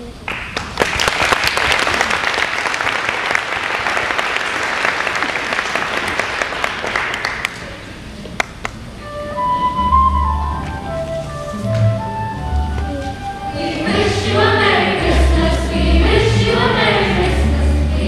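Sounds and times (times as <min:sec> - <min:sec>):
audience applauding: 0:00.2 - 0:08.8.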